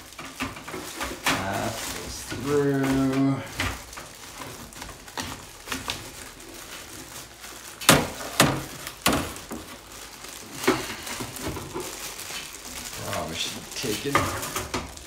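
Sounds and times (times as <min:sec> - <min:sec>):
knocks and clatters: 0:00.0 - 0:06.2, 0:13.9 - 0:15.0
plastic bag crinkling: 0:00.0 - 0:15.0.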